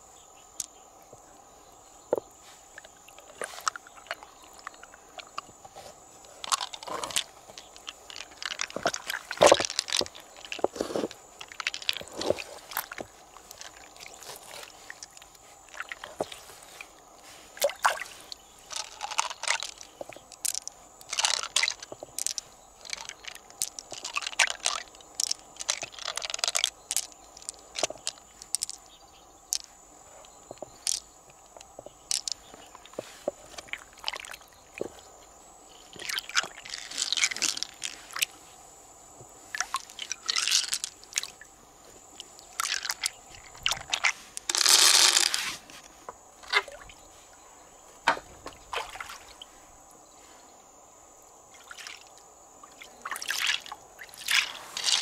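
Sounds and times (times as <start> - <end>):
water splashing and dripping: 6.3 - 28.8, 35.9 - 38.3, 39.5 - 41.5, 42.1 - 45.3, 46.4 - 47.0, 48.1 - 49.5, 51.5 - 55.0
pearls clicking against shell: 6.4 - 10.7, 18.7 - 28.9, 30.6 - 33.0, 39.8 - 41.4, 42.3 - 45.4.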